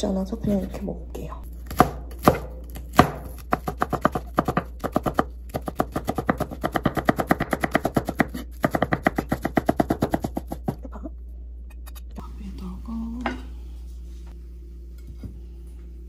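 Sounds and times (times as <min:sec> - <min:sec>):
knife chopping on cutting board: 0:01.7 - 0:10.8.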